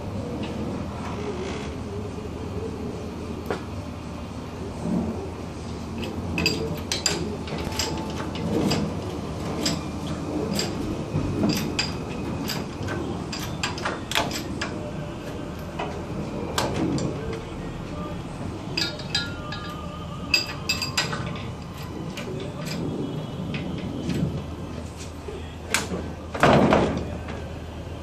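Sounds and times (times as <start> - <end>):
lifting chains clinking: 6.0 - 14.8, 18.7 - 24.3.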